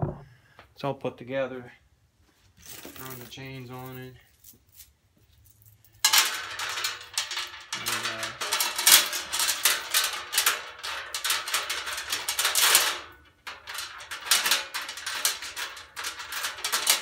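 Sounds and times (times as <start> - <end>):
metal chains rattling against steel: 2.6 - 17.0.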